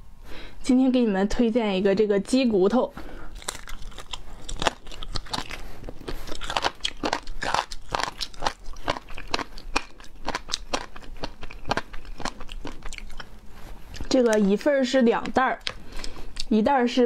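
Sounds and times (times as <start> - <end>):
person crunching chicken bones: 3.3 - 16.5.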